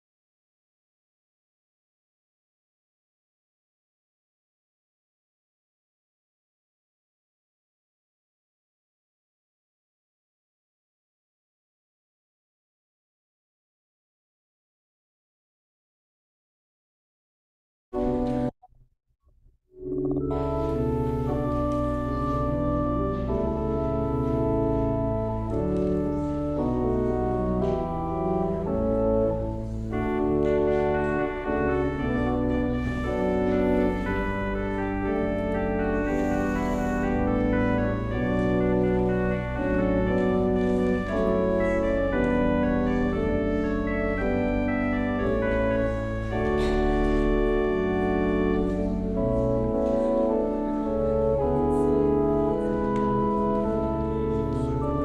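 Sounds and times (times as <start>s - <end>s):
organ playing held chords: 19.8s - 55.0s.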